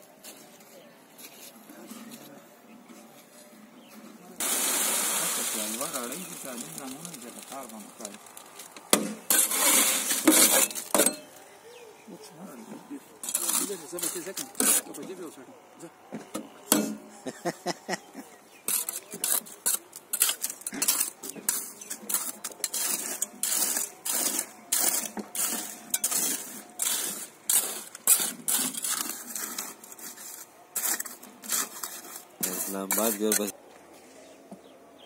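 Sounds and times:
hand tools scraping and clinking: 0:05.7 - 0:11.4, 0:13.2 - 0:15.1, 0:18.6 - 0:33.6.

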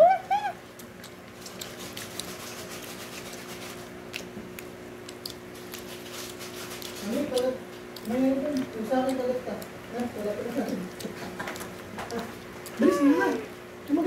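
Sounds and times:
high-pitched squeal of laughter: 0:00.0 - 0:00.6
steady low hum: 0:00.0 - 0:14.0.

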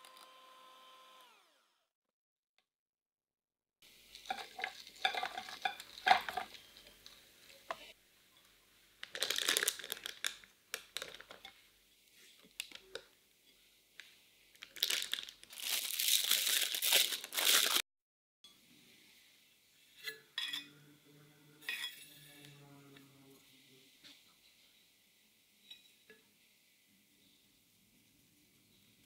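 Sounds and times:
plastic piping bag crinkling: 0:04.1 - 0:07.2, 0:09.0 - 0:11.4, 0:14.5 - 0:17.8.

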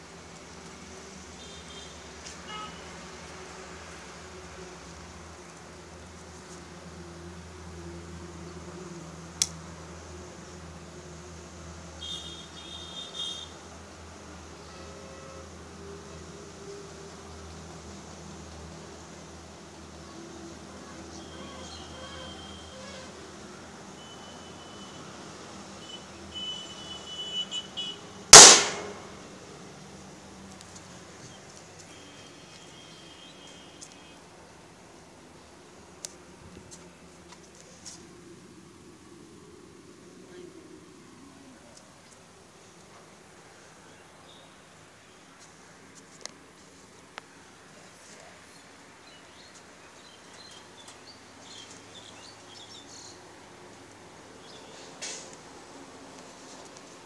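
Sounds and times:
lighter gun bang: 0:28.4 - 0:29.2.

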